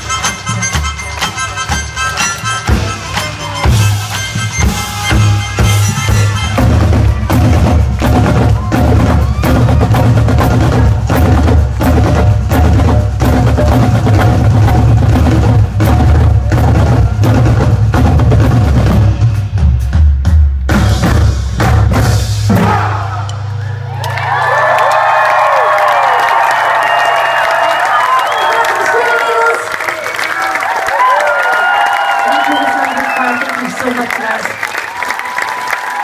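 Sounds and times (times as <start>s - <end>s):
marching drumline beat: 0.0s - 23.2s
band music with heavy bass: 0.0s - 24.8s.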